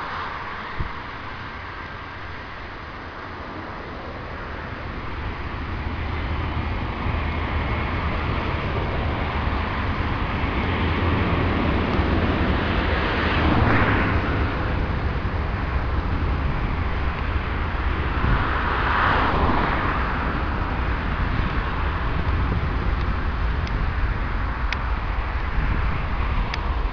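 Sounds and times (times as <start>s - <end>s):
jet engines running: 0.0s - 26.9s.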